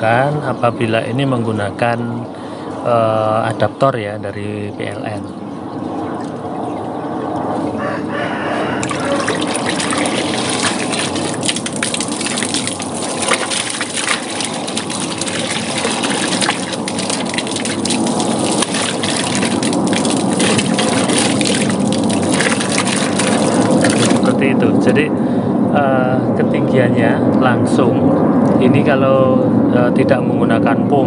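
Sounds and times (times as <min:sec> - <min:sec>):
water jet gushing and splashing: 0:08.7 - 0:24.4.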